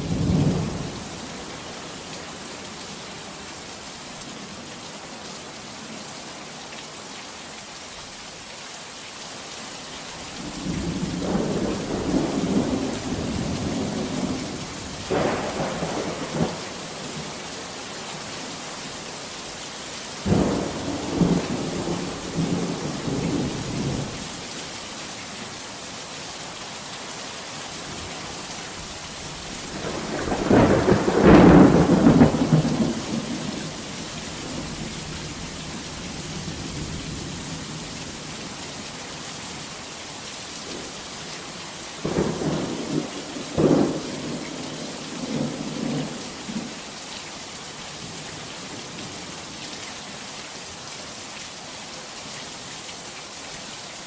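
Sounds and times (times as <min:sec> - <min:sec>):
heavy rain: 0:00.0 - 0:54.0
thunder rolling: 0:29.7 - 0:33.5.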